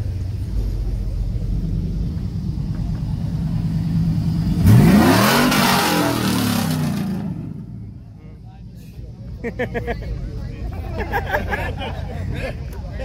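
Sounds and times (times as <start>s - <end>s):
car engine revving: 0.0s - 8.4s.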